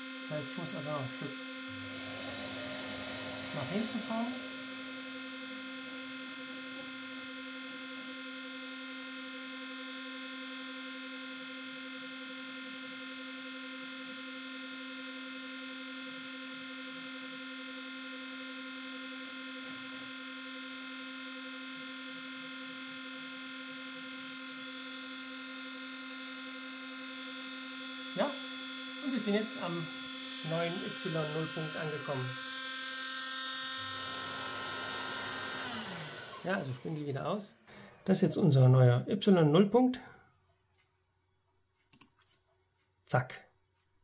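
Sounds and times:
spindle motor whining: 0.4 - 5.9, 28.1 - 38.7.

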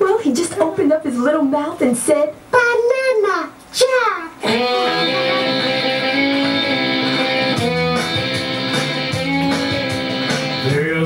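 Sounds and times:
country guitar jingle: 4.4 - 11.0.

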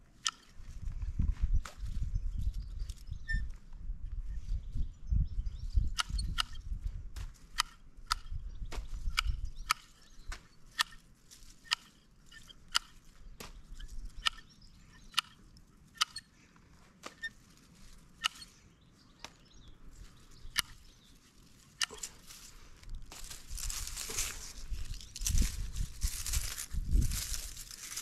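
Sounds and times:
garden shears snipping: 7.2 - 14.5, 17.0 - 18.6, 19.2 - 20.8, 21.4 - 28.0.

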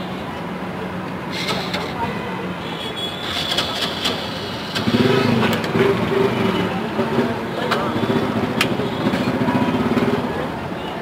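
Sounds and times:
steady street traffic: 0.0 - 11.0
sharp clicks and clatters: 3.3 - 6.0.

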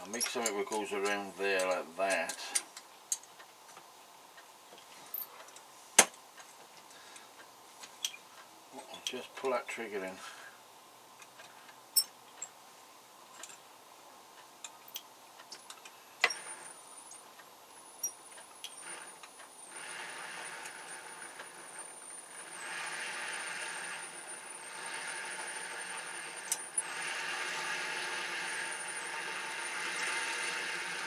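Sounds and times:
drill motor hum: 18.6 - 31.0.

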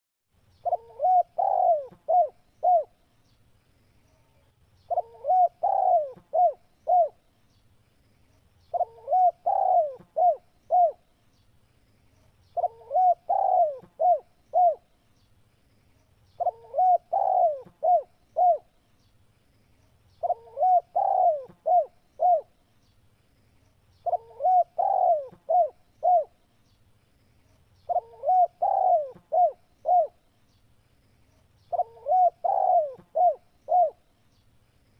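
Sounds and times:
dove cooing: 0.6 - 3.0, 4.9 - 7.2, 8.7 - 11.0, 12.6 - 14.9, 16.4 - 18.7, 20.2 - 22.5, 24.0 - 26.4, 27.9 - 30.2, 31.7 - 34.0.

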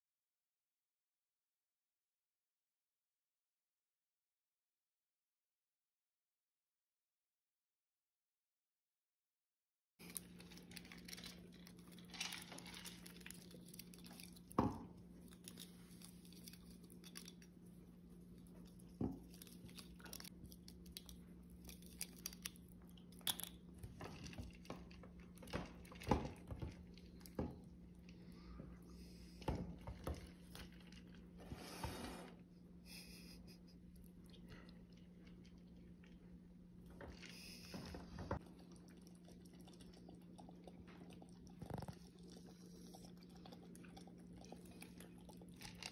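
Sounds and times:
squirrel chewing plastic straw: 41.5 - 43.1.

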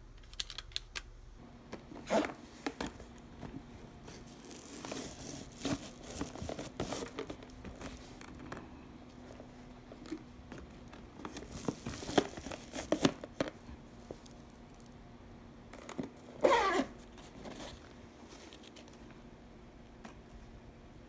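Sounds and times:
faint steady hum: 0.0 - 21.0
zipper being pulled shut: 2.0 - 2.4, 16.4 - 16.9
foil lining crinkling: 4.0 - 8.3.

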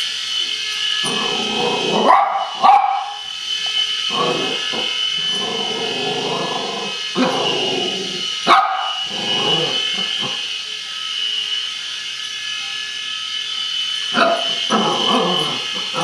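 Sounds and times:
toy helicopter rotor whine: 0.0 - 16.0
dog barking: 2.0 - 3.2, 8.5 - 9.0, 14.2 - 14.6.

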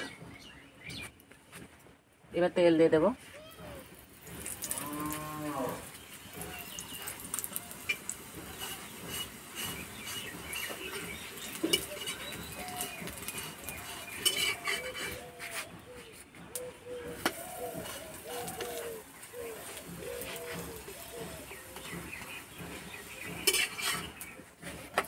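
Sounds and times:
oil frying: 3.8 - 15.3, 17.0 - 25.0
spatula scraping metal griddle: 4.2 - 16.1, 17.1 - 25.0.

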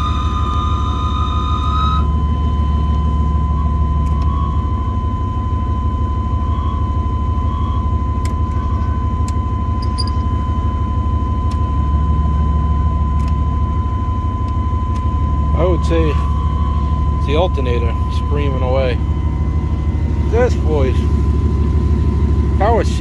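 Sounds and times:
high-pitched alternator whine: 0.0 - 23.0
pickup engine running: 0.0 - 23.0
dash switches clicking: 4.0 - 4.4.

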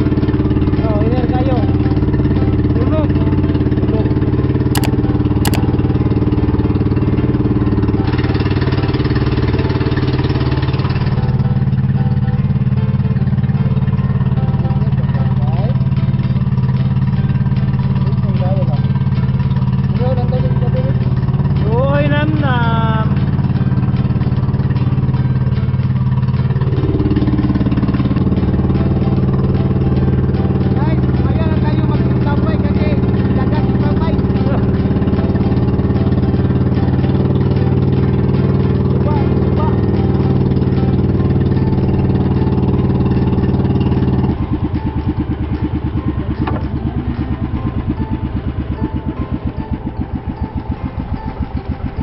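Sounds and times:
boat engine droning: 0.0 - 52.0
short sharp clicks: 4.8 - 5.6.

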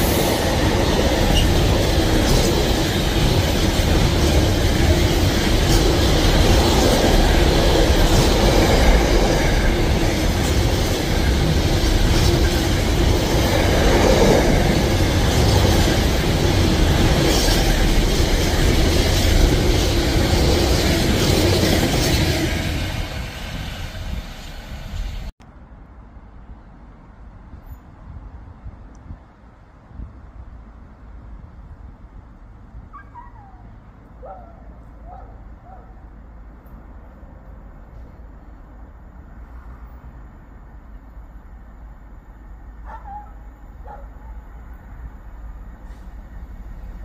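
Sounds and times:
train wheels clattering over bridge: 0.0 - 25.3.

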